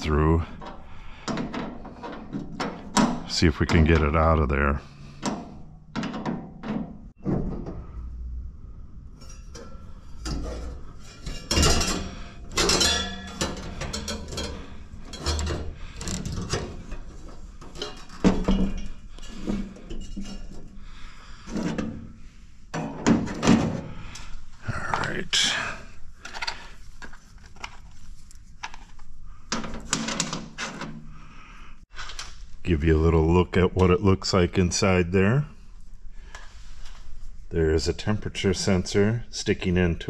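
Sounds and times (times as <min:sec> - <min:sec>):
clinks and scrapes of fan assembly: 0:00.1 - 0:04.3, 0:09.1 - 0:24.3, 0:26.2 - 0:31.0.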